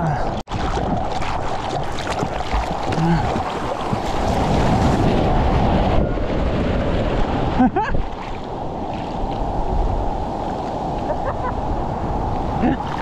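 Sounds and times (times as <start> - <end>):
wind buffeting the microphone: 0.6 - 13.0
ocean surf breaking: 2.9 - 13.0.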